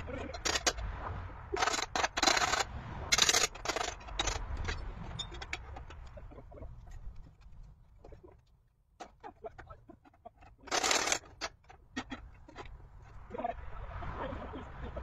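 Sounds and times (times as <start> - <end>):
scraping bursts: 0.0 - 8.4, 9.0 - 13.8.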